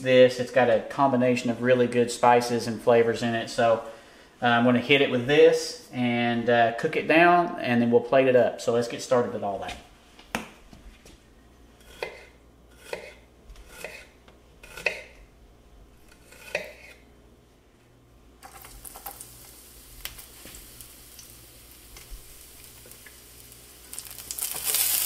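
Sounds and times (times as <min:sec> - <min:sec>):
knife chopping on wooden board: 0:11.9 - 0:14.1, 0:16.2 - 0:16.9
oil sizzling in frying pan: 0:18.4 - 0:25.0.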